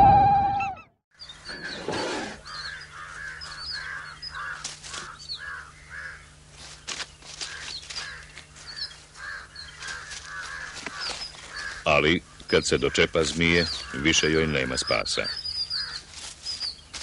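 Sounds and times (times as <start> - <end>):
higher bird chirps: 0.0 - 1.8, 12.5 - 17.0
birds calling: 0.0 - 17.0.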